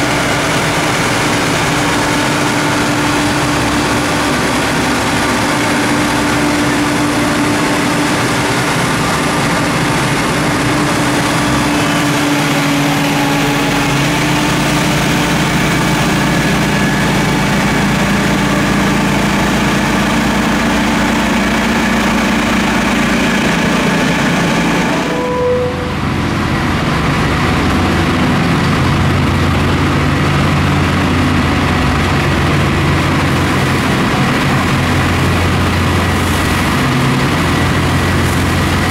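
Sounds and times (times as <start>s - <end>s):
rotary snow blower blasting snow: 0.0s - 25.2s, 26.9s - 38.9s
diesel engine running: 0.0s - 38.9s.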